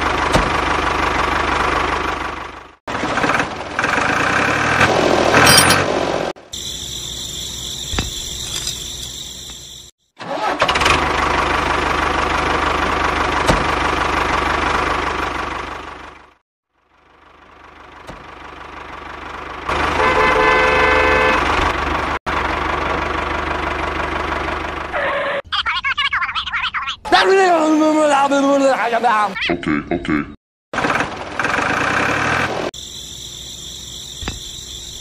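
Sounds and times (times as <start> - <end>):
tractor engine rumbling: 0.0 - 26.9, 30.8 - 35.0
horn-like beep: 20.0 - 21.5.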